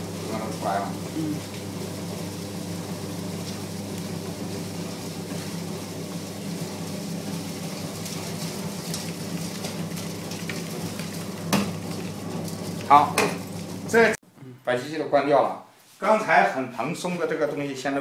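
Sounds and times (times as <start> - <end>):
electric motor hum: 0.0 - 14.2
granules pouring into bucket: 5.4 - 13.6.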